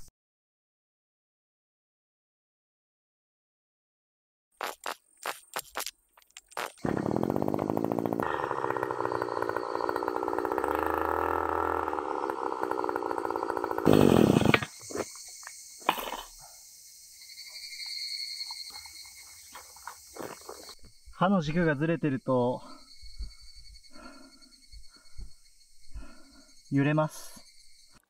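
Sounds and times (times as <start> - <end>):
brush cutter engine running: 6.8 - 14.8.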